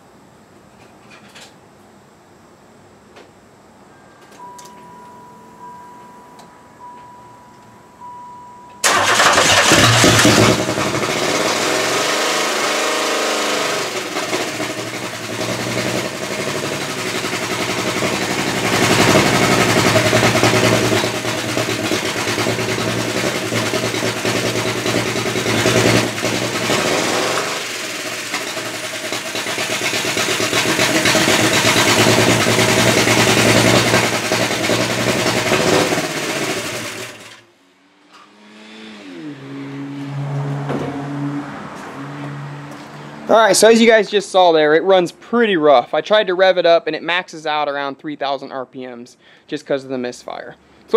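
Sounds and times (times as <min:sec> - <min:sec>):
car engine misfiring and revving: 0:08.8 - 0:43.4.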